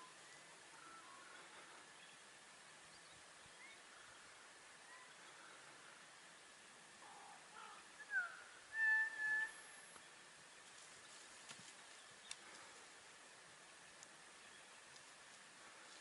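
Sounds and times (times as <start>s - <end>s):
faint clicks: 9.9s - 13.0s, 13.9s - 14.2s, 14.8s - 16.0s.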